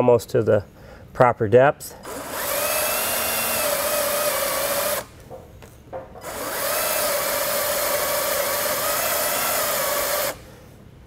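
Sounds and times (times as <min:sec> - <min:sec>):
cordless drill drilling into metal: 0:02.0 - 0:05.1, 0:06.2 - 0:10.5.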